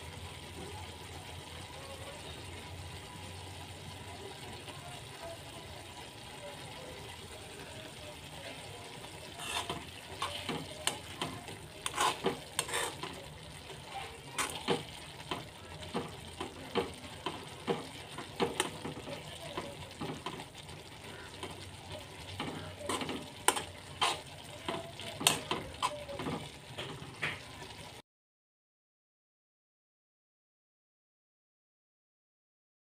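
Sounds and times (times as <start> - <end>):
low sizzle: 0.0 - 28.0
metal spoon scraping a wok: 9.1 - 20.4, 22.2 - 26.4.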